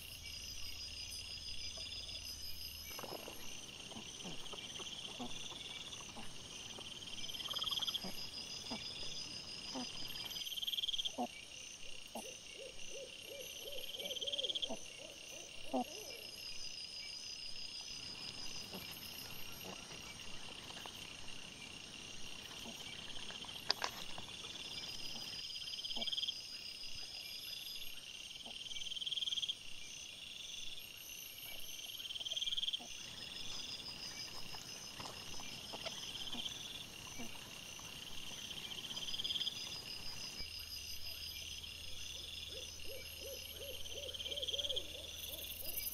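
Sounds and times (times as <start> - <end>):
night insects chirping: 0.0 - 45.9
boar rooting clicks and rustles: 23.1 - 24.7.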